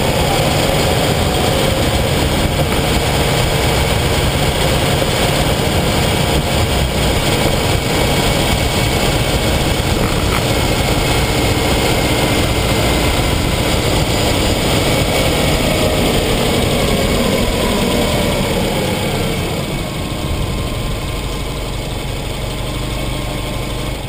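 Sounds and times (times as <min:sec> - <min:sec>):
tyre noise: 0:00.0 - 0:18.3
car engine: 0:00.0 - 0:24.0.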